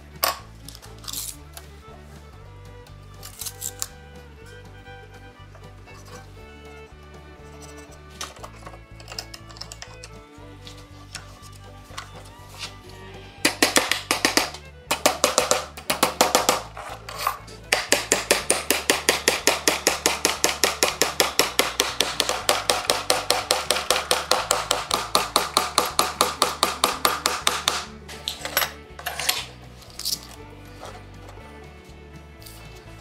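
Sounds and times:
hammer striking nails into wood: 13.4s - 16.9s, 17.7s - 28.0s.

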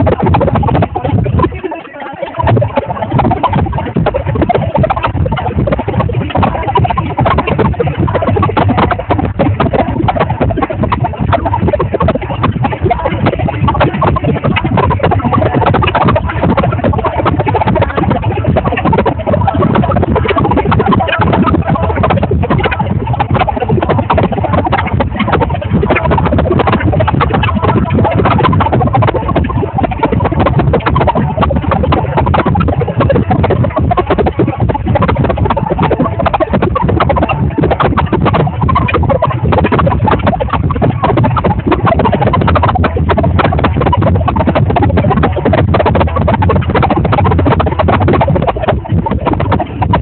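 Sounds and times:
crowd voices: 1.5s - 3.0s.

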